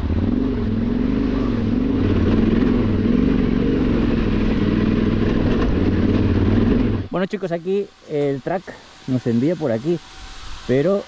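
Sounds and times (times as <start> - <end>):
motorcycle engine at low revs: 0.0 - 7.2.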